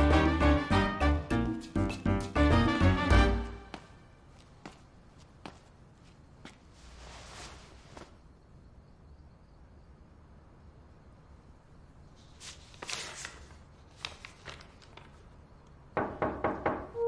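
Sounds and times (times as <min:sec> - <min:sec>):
paper rustling and sliding: 0:06.7 - 0:08.2, 0:12.2 - 0:15.4.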